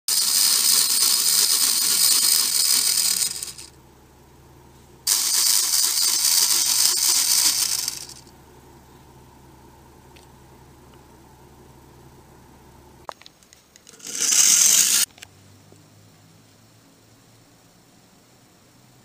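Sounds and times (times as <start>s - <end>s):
toy spring motor whirring: 0.1s - 3.8s, 5.1s - 8.3s, 13.8s - 15.1s.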